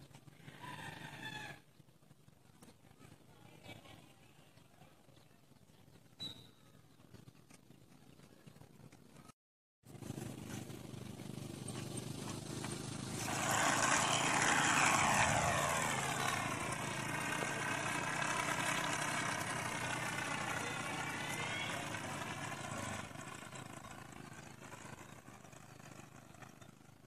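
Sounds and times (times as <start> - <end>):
model plane propeller buzzing: 9.9 - 27.0.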